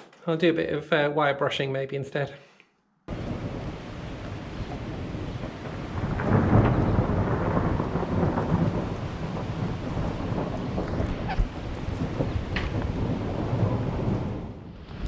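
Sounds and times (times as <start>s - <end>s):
rain: 3.1s - 15.0s
thunder rumbling: 3.1s - 15.0s.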